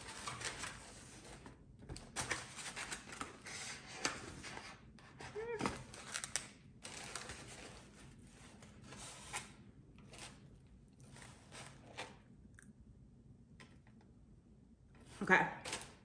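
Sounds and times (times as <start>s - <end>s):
paper and foam crinkling: 0.0s - 12.2s.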